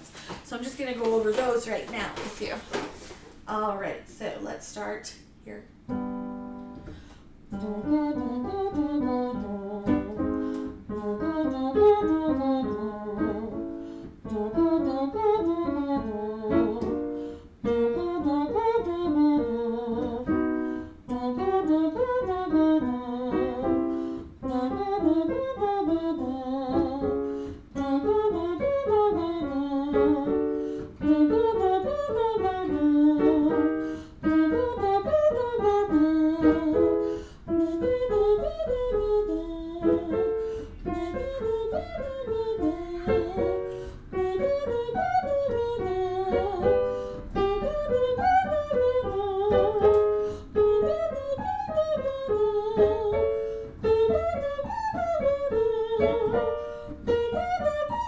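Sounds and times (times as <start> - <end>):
woman singing buzzy vocal scales: 7.5 - 58.0.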